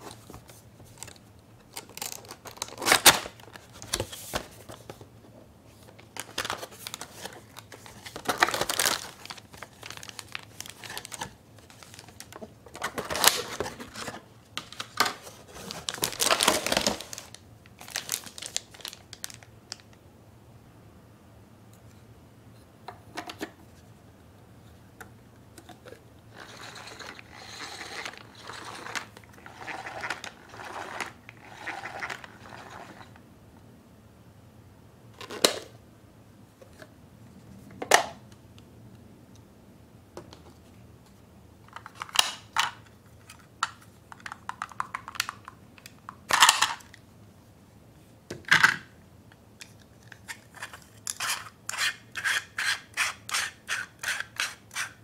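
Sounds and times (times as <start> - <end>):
plastic parts scraping: 25.6 - 33.2.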